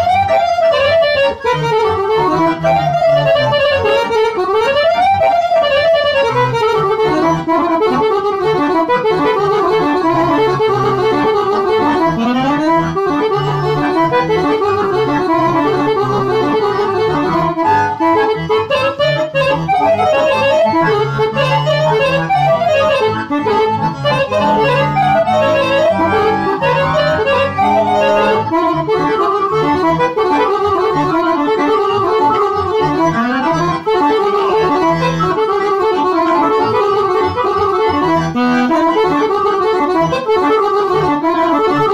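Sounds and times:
accordions playing melody: 0:00.0 - 0:41.9.

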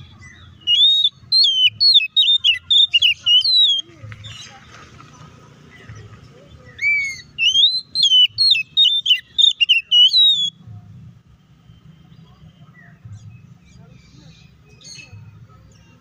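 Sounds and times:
bird singing whistled notes: 0:00.0 - 0:04.5, 0:06.7 - 0:10.6.

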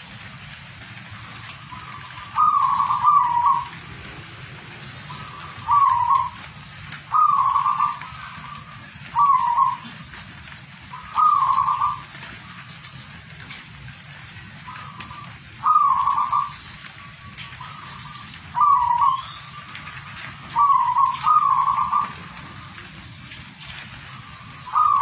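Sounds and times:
dove cooing: 0:01.2 - 0:12.6, 0:14.5 - 0:22.8, 0:23.7 - 0:25.0.

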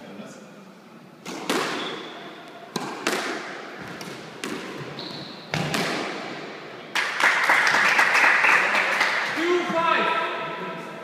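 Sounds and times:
squash ball hitting rackets and walls: 0:01.2 - 0:06.6
people clapping: 0:06.9 - 0:09.4.

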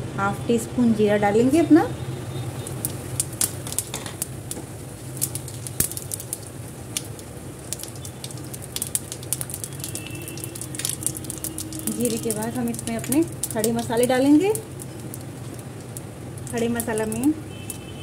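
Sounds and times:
seeds crackling in hot oil: 0:00.5 - 0:18.0.

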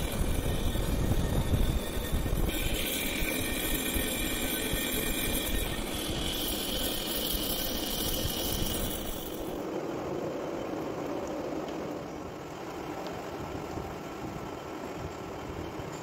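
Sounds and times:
metal lathe drone: 0:00.0 - 0:09.7.

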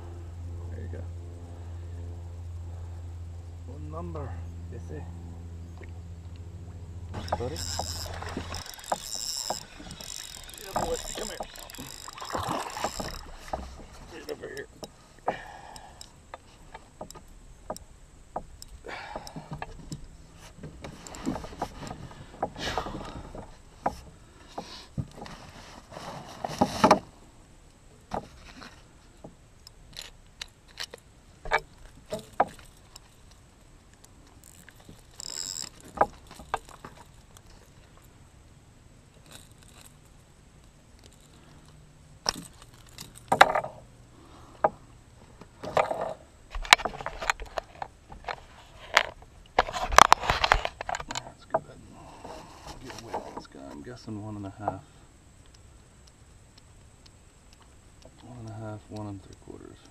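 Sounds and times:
clicks and knocks in a canoe: 0:07.1 - 0:27.3, 0:28.0 - 0:38.2, 0:39.1 - 0:54.9.

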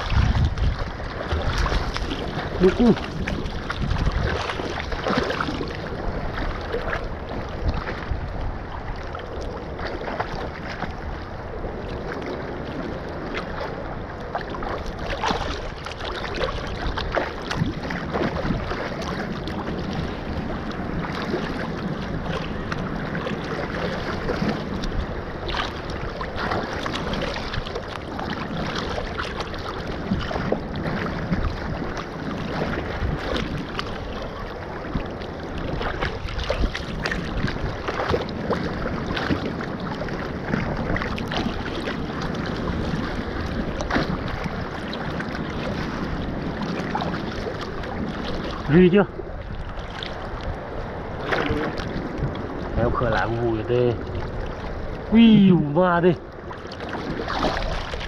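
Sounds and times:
seawater sloshing: 0:00.0 - 0:58.0
wind on microphone: 0:00.0 - 0:58.0
net splashing in water: 0:56.8 - 0:58.0.

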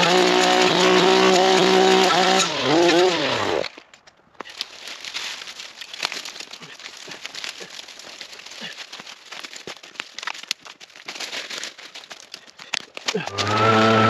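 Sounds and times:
sticks cracking and rattling: 0:00.0 - 0:14.0
dry leaves crunching underfoot: 0:04.4 - 0:14.0.

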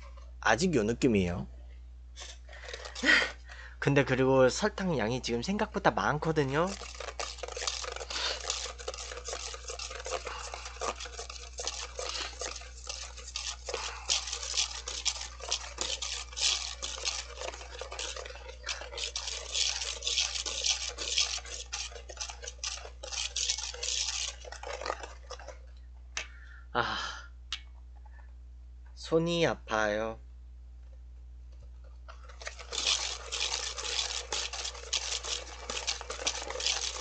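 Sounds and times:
whisk scraping a metal bowl: 0:02.2 - 0:25.7, 0:32.1 - 0:37.0.

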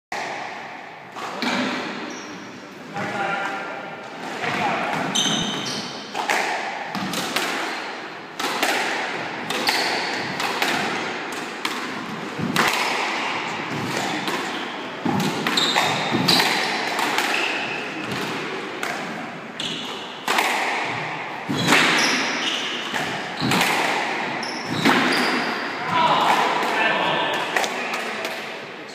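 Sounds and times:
squash ball cracking off rackets and walls: 0:04.4 - 0:28.3
shoes squeaking on wooden floor: 0:05.1 - 0:06.0, 0:15.6 - 0:16.5, 0:24.4 - 0:25.7.

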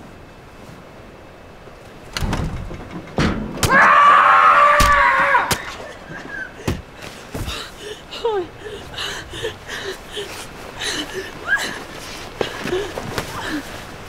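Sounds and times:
heavy thuds and bangs: 0:02.1 - 0:04.2
person screaming: 0:03.7 - 0:05.6.

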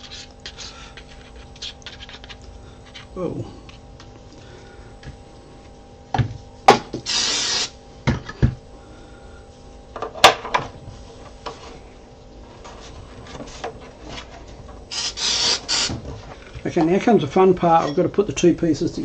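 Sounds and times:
aerosol spray can hissing: 0:07.0 - 0:07.8, 0:14.9 - 0:16.0.

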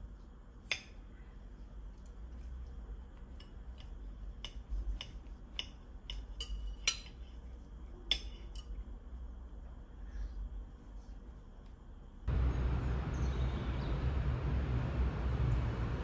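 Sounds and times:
low steady rumble: 0:00.0 - 0:16.0
cutlery clinking on plates: 0:03.4 - 0:07.3.

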